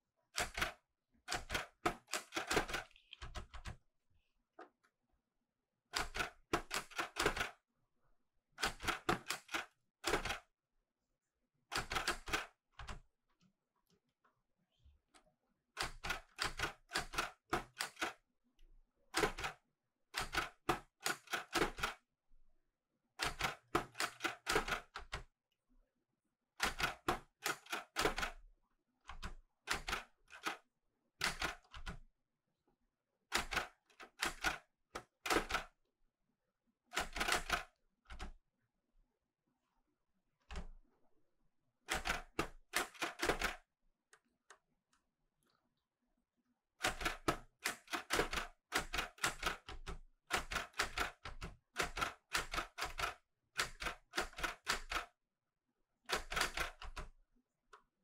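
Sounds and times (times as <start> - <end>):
typewriter clacking: 0.4 - 3.7, 29.2 - 30.6, 41.9 - 43.6, 46.8 - 55.1, 56.1 - 57.0.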